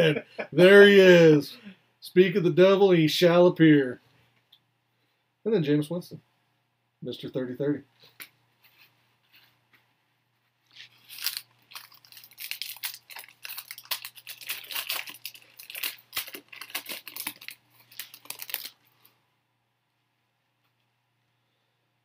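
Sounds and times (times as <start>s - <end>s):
card pack wrapper tearing and crinkling: 10.7s - 19.1s.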